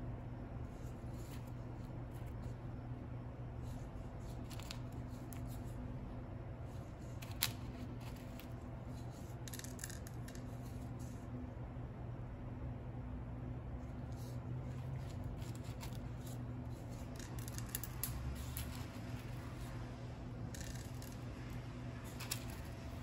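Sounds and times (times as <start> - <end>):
low machine hum: 0.0 - 23.0
decorating tools scraping: 14.0 - 23.0.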